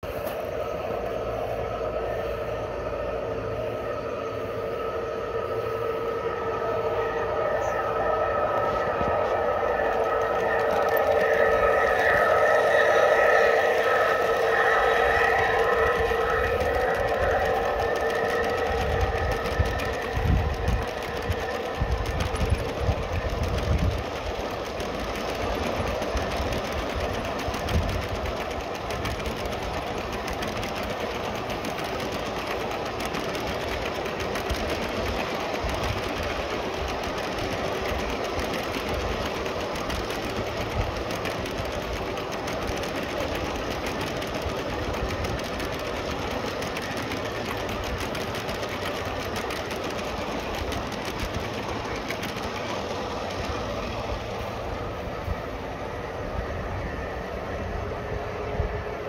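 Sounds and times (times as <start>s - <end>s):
model train wheels clattering: 8.3s - 55.6s.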